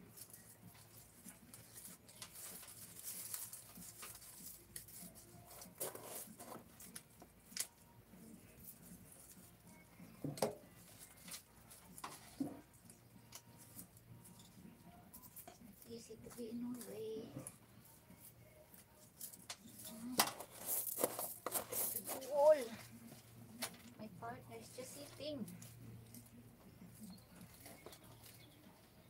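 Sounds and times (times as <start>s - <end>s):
rustling of plant debris: 0.1s - 7.0s.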